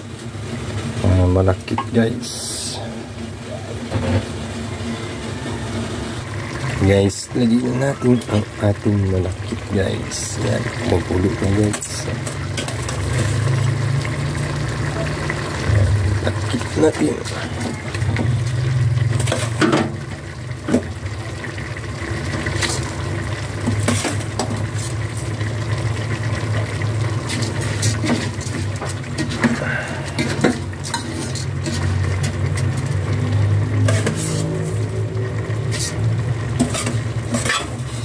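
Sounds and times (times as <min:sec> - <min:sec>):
food sizzling: 0:00.0 - 0:38.0
low hum: 0:15.5 - 0:16.8
utensil scraping metal pot: 0:22.3 - 0:38.0.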